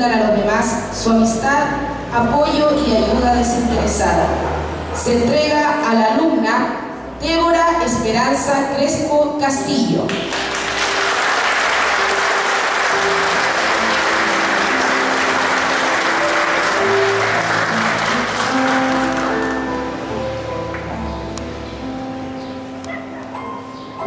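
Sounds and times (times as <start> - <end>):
audience applauding: 10.1 - 21.0
instrumental music: 10.1 - 24.0.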